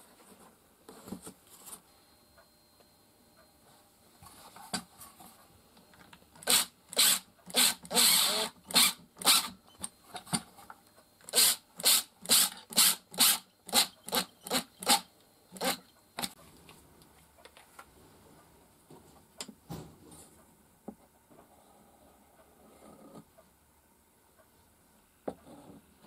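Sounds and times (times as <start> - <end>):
cordless driver bursts: 6.4 - 9.6.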